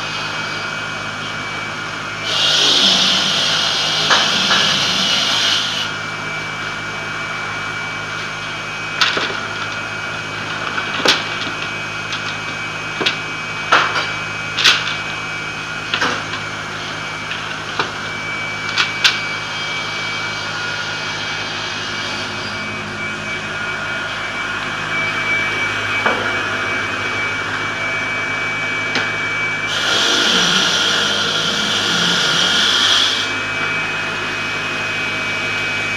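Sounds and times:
circular saw machine running: 0.0s - 35.9s
sheet hissing through blades: 2.2s - 5.9s, 29.7s - 33.4s.

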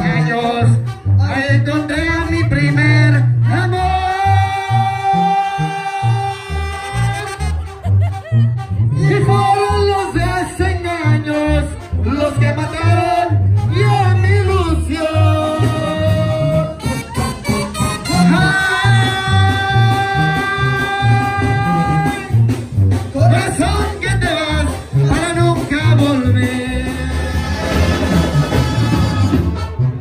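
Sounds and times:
steady bass beat: 0.0s - 30.0s
people singing along: 15.0s - 16.8s, 18.2s - 22.2s
person singing long notes: 18.1s - 22.3s.

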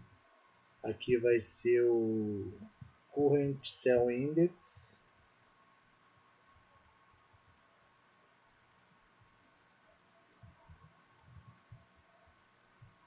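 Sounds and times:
computer mouse clicks: 6.8s - 7.8s, 8.6s - 8.9s, 10.3s - 12.0s.

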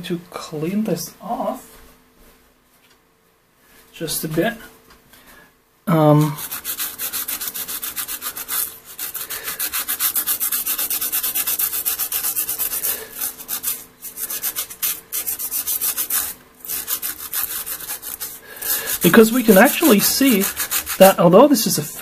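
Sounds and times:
stiff brush scrubbing circuit board: 6.2s - 21.8s.

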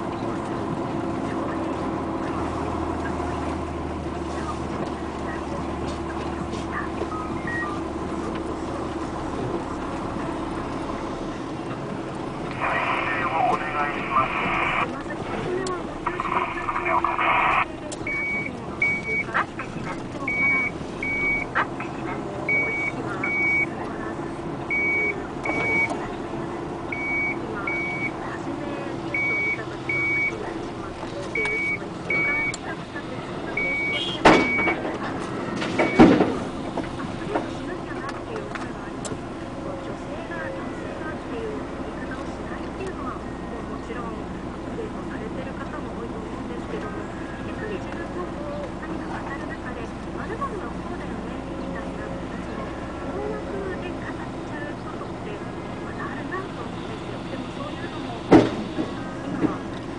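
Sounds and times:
excavator diesel engine running: 0.0s - 59.9s
back-up alarm beeping: 7.0s - 7.8s, 16.1s - 19.5s, 20.3s - 23.7s, 24.7s - 26.0s, 26.9s - 28.2s, 29.1s - 30.5s, 31.3s - 32.7s, 33.5s - 34.8s, 35.8s - 36.3s.

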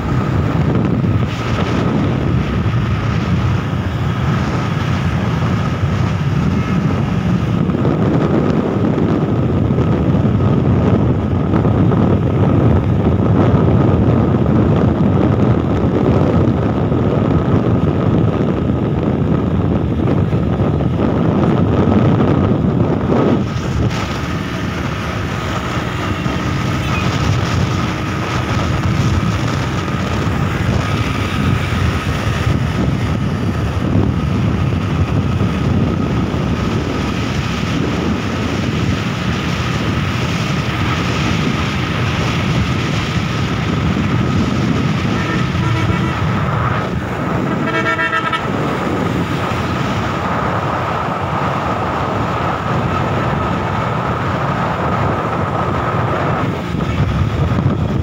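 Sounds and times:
vehicle road and engine noise: 0.0s - 58.0s
wind: 0.0s - 58.0s
vehicle horn beeping: 45.1s - 46.5s, 47.4s - 48.6s.

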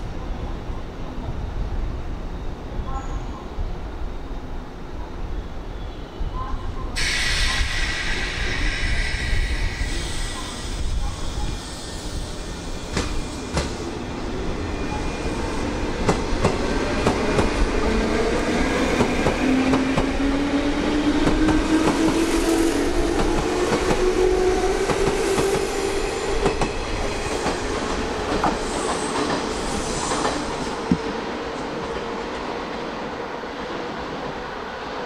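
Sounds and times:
train rumble: 6.4s - 34.5s.

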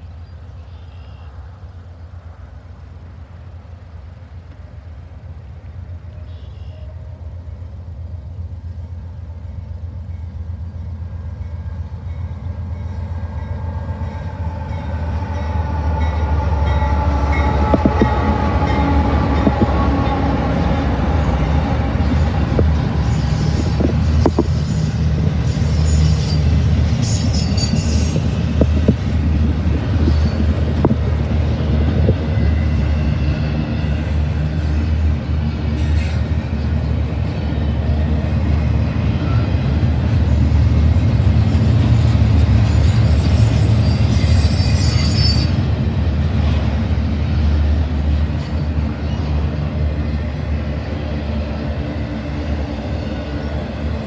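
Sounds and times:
train wheels rumbling on rails: 0.0s - 54.0s
wheel squeals: 42.6s - 45.7s.

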